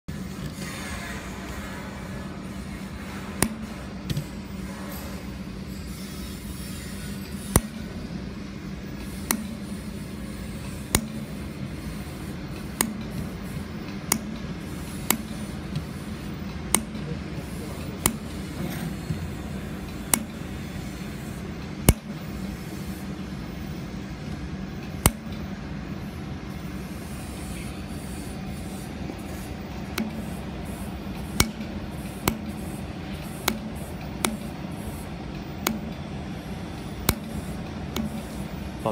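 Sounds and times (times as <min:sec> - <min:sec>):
steady low hum: 0:00.1 - 0:38.9.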